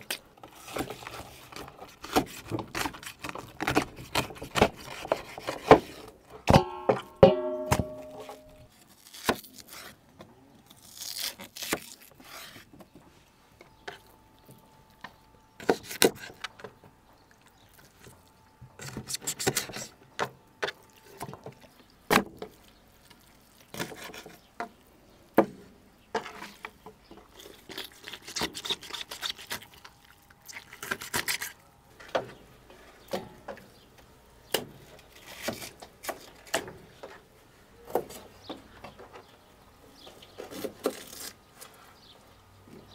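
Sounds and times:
knife scraping and wet rubbing: 0.1 - 6.1, 8.3 - 10.0, 10.7 - 12.7, 17.3 - 20.0, 20.6 - 24.9, 26.2 - 31.6, 40.4 - 41.8.

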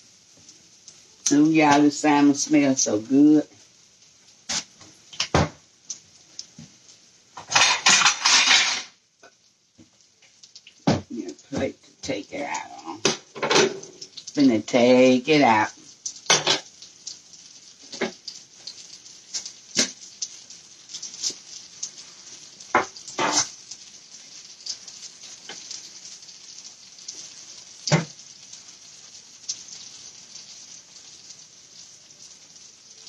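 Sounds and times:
oil sizzling in a frying pan: 0.0 - 33.0
utensils and dishes clinking: 7.4 - 9.0, 13.0 - 14.1, 16.3 - 16.7.

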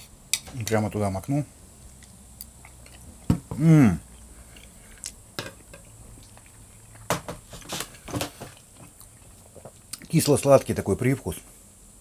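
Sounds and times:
quiet chewing with clicks: 1.8 - 3.3, 4.1 - 7.1, 8.5 - 10.2
man humming mmm: 3.5 - 4.2.

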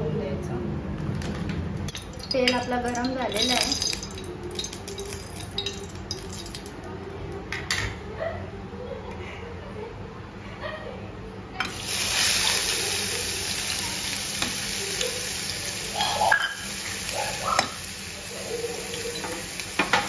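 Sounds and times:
onions sizzling in hot oil: 2.0 - 6.7, 11.7 - 20.0.

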